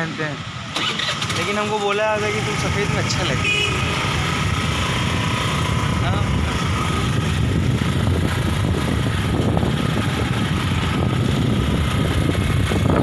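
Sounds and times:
road noise: 0.0s - 13.0s
wind buffeting microphone: 4.2s - 13.0s.

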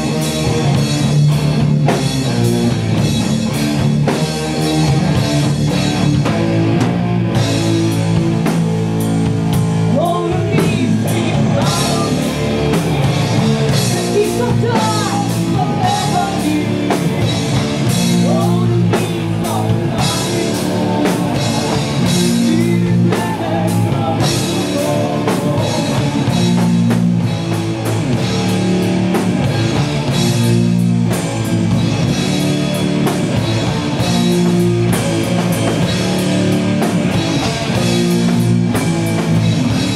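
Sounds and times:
bass guitar: 0.0s - 39.9s
drum kit: 0.0s - 39.9s
heavy distorted guitar chords: 0.0s - 39.9s
person singing: 9.9s - 12.6s, 13.9s - 17.4s, 18.0s - 26.6s.

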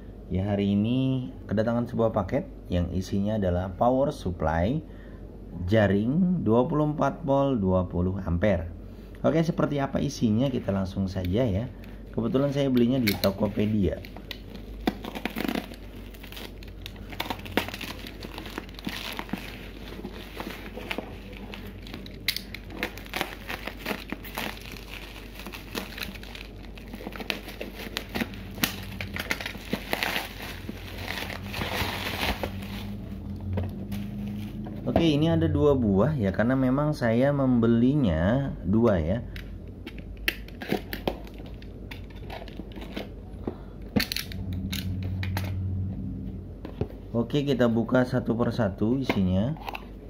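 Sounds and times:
low hum: 7.9s - 37.6s, 41.5s - 47.8s
bubble wrap crinkling: 12.2s - 34.9s.

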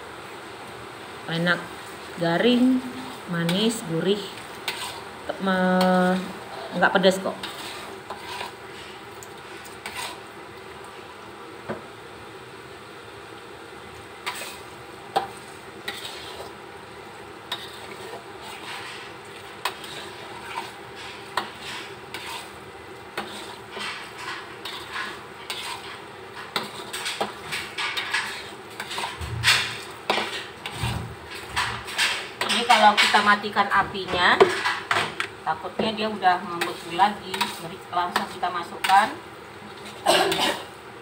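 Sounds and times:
paste sizzling: 1.6s - 10.6s, 14.0s - 33.6s, 35.5s - 40.8s
metal spatula scraping wok: 2.5s - 10.3s, 14.2s - 16.6s, 17.5s - 35.0s, 35.7s - 40.8s.

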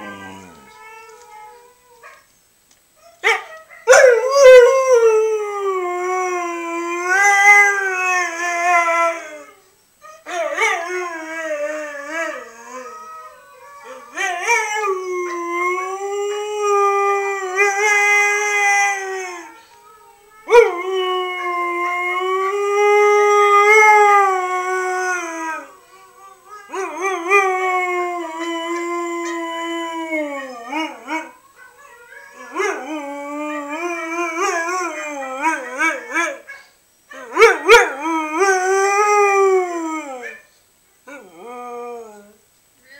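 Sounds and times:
dog howling: 0.0s - 2.2s, 10.2s - 19.6s.

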